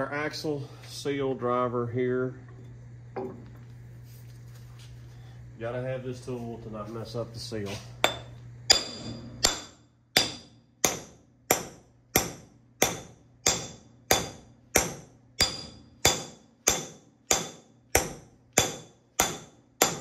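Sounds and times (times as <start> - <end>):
hammer striking metal tube: 8.1 - 20.0.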